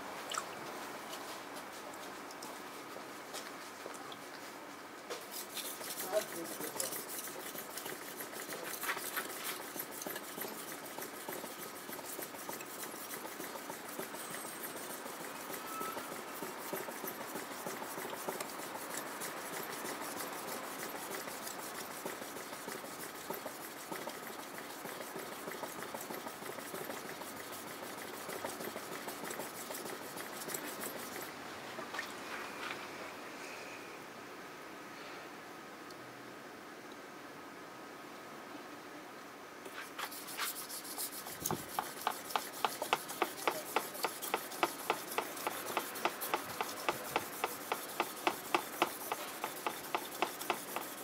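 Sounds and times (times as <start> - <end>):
knife scraping on wet whetstone: 5.1 - 31.3, 39.7 - 51.0.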